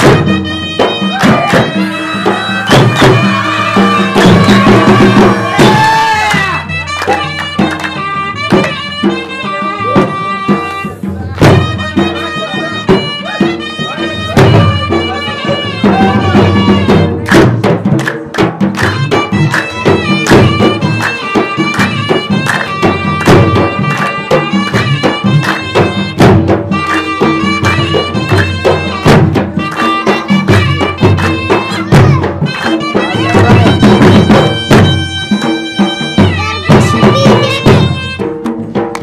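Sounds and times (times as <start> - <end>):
drums beating a steady rhythm: 0.0 - 39.0
melody instrument long held notes: 0.2 - 17.3.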